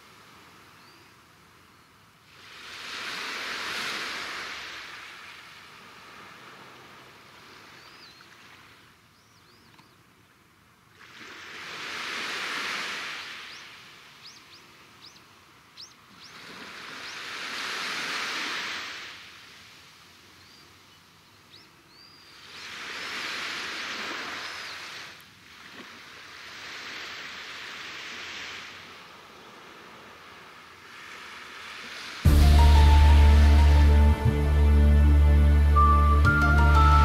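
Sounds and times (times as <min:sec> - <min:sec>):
small waves washing ashore: 0:00.0 - 0:09.6, 0:10.4 - 0:34.6.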